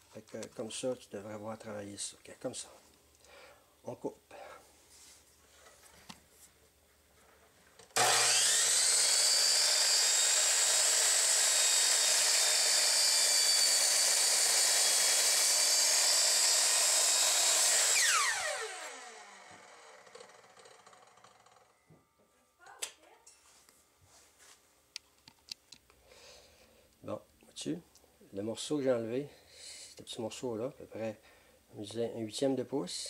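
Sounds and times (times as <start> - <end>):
saw blade cutting wood: 8.0 - 21.7
miter saw whining: 8.0 - 21.8.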